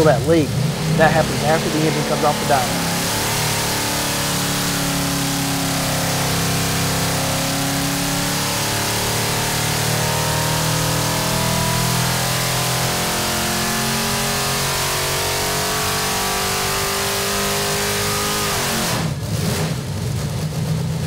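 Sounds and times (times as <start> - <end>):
engine at high rpm: 0.0 - 21.0.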